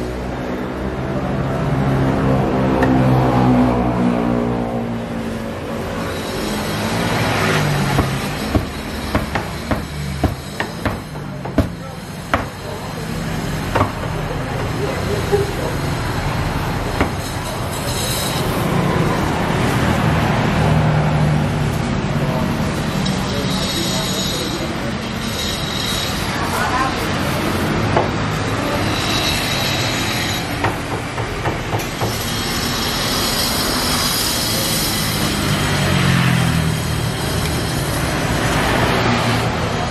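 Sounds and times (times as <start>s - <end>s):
street traffic noise: 0.0s - 39.9s
cleaver chopping on wooden block: 7.8s - 12.6s, 17.0s - 17.2s
high squeal: 22.8s - 27.0s.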